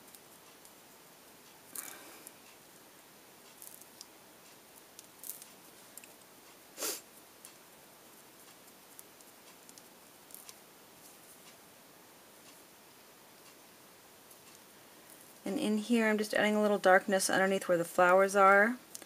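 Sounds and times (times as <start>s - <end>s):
short louder hiss: 6.8s - 7.1s.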